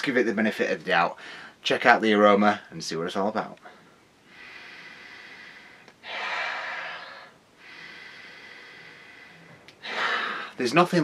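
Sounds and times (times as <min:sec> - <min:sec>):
man sniffing deeply: 0:04.4 - 0:10.6.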